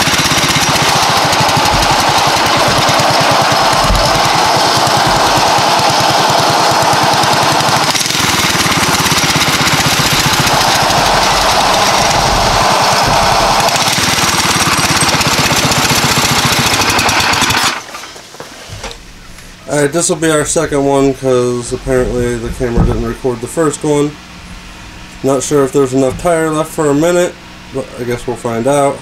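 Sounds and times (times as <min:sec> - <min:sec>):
small engine at full throttle: 0:00.0 - 0:17.9
tire spinning on asphalt: 0:00.0 - 0:17.9.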